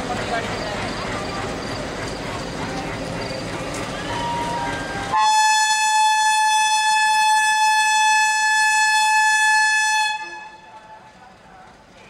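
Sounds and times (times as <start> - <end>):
railway platform noise: 0.0 - 12.0
train horn blast: 4.2 - 10.8.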